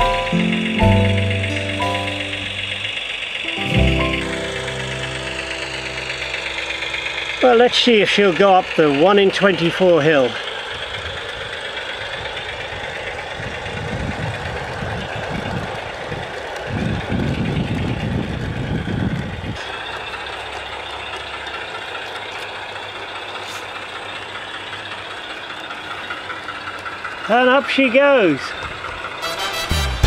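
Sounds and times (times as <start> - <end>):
low rumble: 0.0 - 9.1
diesel shunter engine: 0.0 - 30.0.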